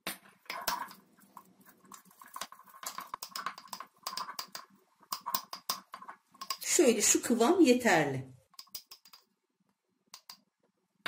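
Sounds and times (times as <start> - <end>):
wooden spoon scraping glass jar: 0.5 - 6.6.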